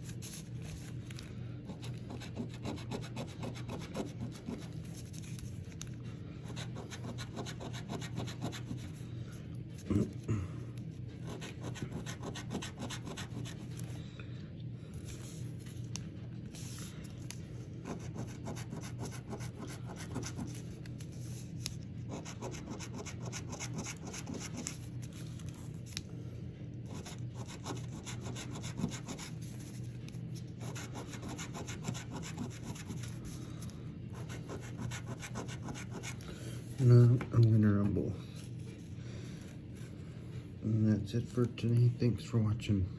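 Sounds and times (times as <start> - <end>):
coin scratching lottery ticket: 1.8 - 4.8, 6.5 - 8.9, 11.2 - 13.7, 22.1 - 24.8, 26.9 - 29.4, 30.6 - 33.1.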